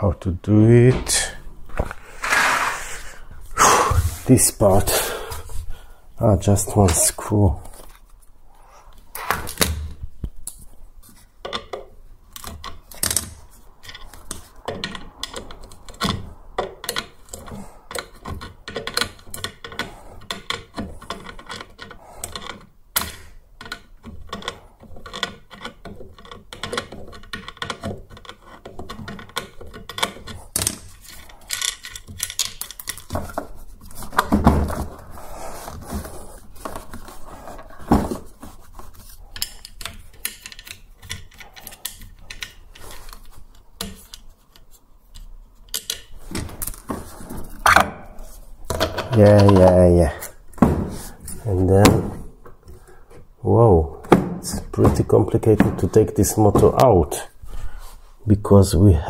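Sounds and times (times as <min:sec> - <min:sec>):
hand tools clicking and clattering: 0:11.2 - 0:35.1, 0:35.7 - 0:53.2.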